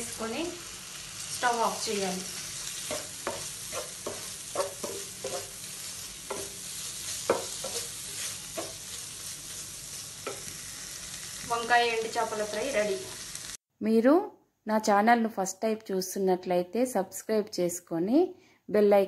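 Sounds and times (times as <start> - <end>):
oil sizzling: 0.0 - 13.6
wooden spatula scraping pan: 2.6 - 9.6.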